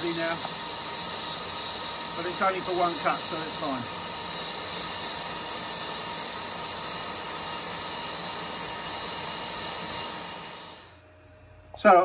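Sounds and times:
lathe cutting steel hiss: 0.0 - 11.0.

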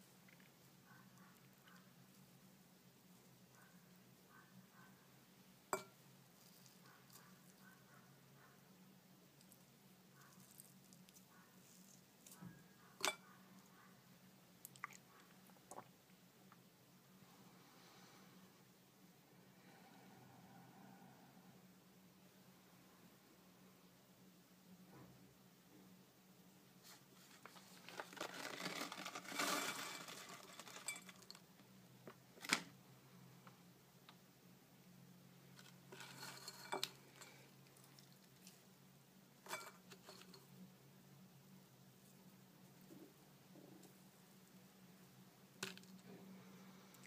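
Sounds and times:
low steady hum: 0.0 - 47.0
plastic pouch crinkling: 27.2 - 31.4.

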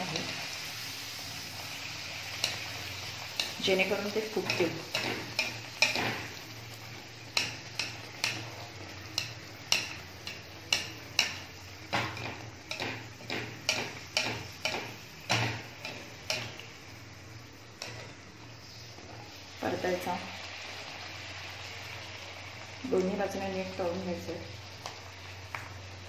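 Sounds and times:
wire skimmer tapping a pan: 3.3 - 6.4, 7.3 - 16.7.

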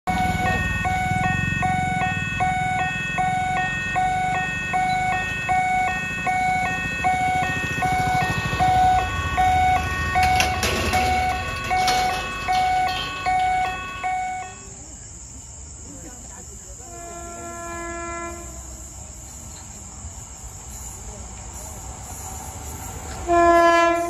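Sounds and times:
scooter engines: 0.1 - 16.7.

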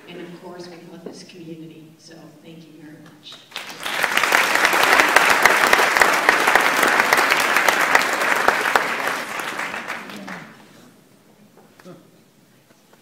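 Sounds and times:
audience applauding: 3.5 - 10.8.

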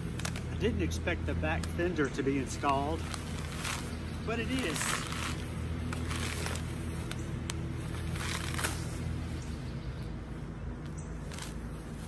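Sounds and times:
plastic wrapping crinkling: 0.0 - 0.5, 2.5 - 9.1.

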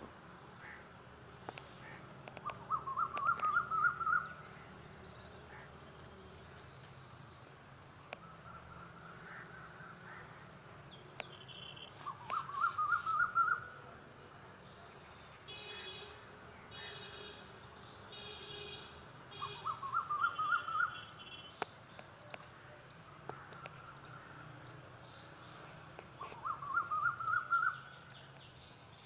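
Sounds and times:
bird calling rapid notes: 2.4 - 4.3, 19.3 - 21.2.

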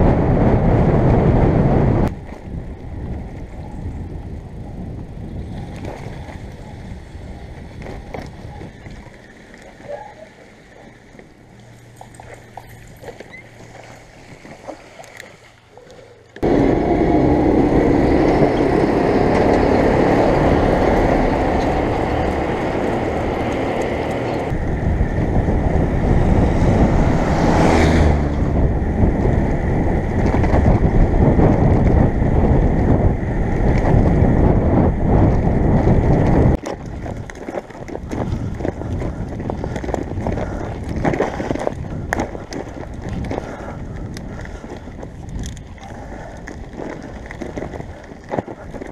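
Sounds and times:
wind buffeting microphone: 0.0 - 14.7, 16.0 - 48.9
bicycle rattling on dirt track: 2.1 - 15.5, 28.5 - 48.9.

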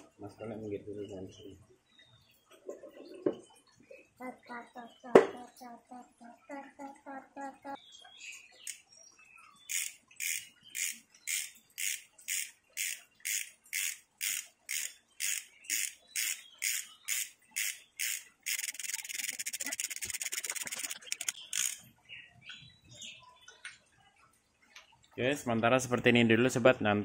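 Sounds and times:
ratchet wrench clicking: 9.7 - 21.8.

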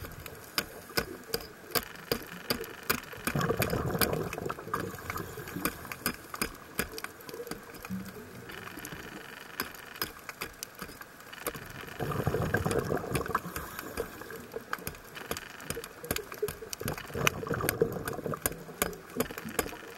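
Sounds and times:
crackle of sharp clicks underwater: 0.0 - 19.9
bubbling rush of exhaled breath: 3.3 - 5.9, 12.0 - 14.4, 16.9 - 18.5.

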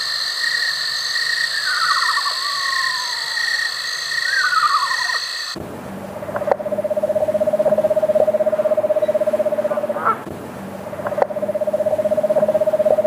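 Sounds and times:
owl trilling: 0.0 - 5.6, 6.4 - 10.2.

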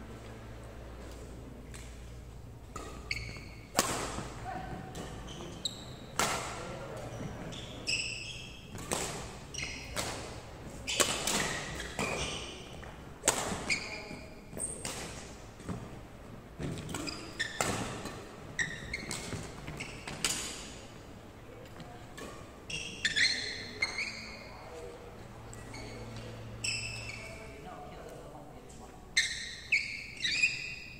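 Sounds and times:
rackets hitting shuttlecock: 1.0 - 7.1, 8.7 - 13.9, 16.6 - 20.8
sports shoes squeaking on wood: 3.0 - 3.7, 5.0 - 6.1, 7.0 - 8.7, 9.5 - 10.0, 16.9 - 17.7, 18.5 - 20.4, 22.7 - 24.7, 25.6 - 27.4.

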